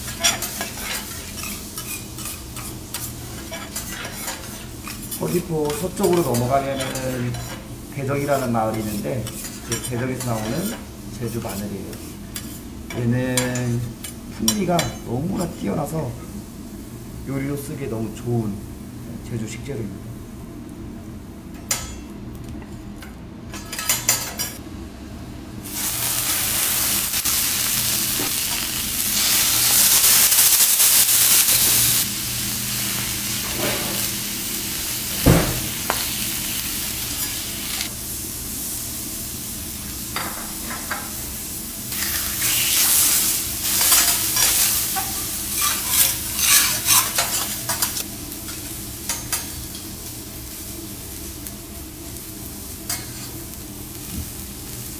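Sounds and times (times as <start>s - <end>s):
food sizzling on a griddle: 0.0s - 18.2s, 25.6s - 54.9s
metal spatulas scraping griddle: 0.1s - 7.6s, 8.2s - 12.7s, 33.4s - 34.1s, 43.7s - 49.5s
dull thump: 35.2s - 35.7s.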